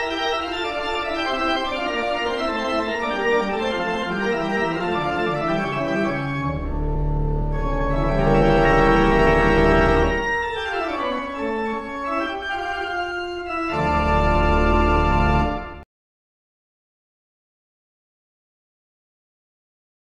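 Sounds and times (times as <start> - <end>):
sustained organ-like chords: 0.0 - 15.8
deep bass layer: 6.4 - 10.2.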